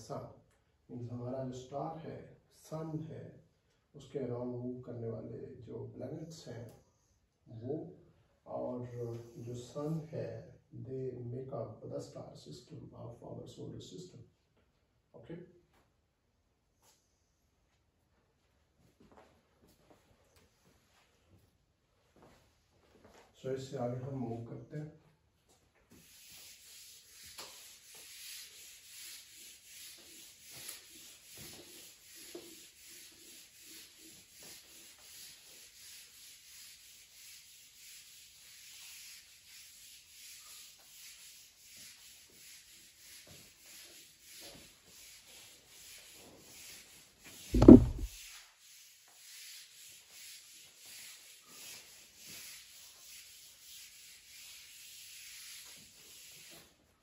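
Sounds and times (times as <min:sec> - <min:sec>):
eraser rubbing whiteboard: 0:25.9 - 0:56.8
loud thump: 0:47.6 - 0:48.1.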